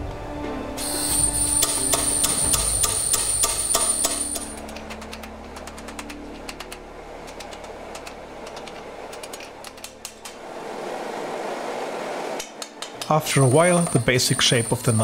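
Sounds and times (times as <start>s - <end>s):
low machine hum: 0.0s - 15.0s
hammer striking blade on anvil: 0.8s - 4.7s.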